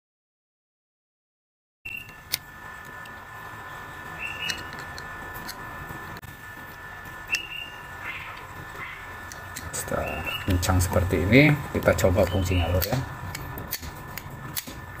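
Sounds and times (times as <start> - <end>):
faint high whine: 1.9 - 13.3.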